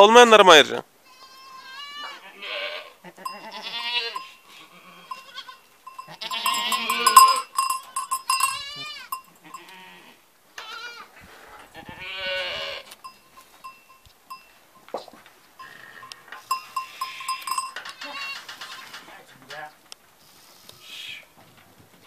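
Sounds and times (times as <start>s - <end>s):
goats bleating: 1.0s - 7.6s, 8.3s - 11.1s, 11.8s - 13.0s.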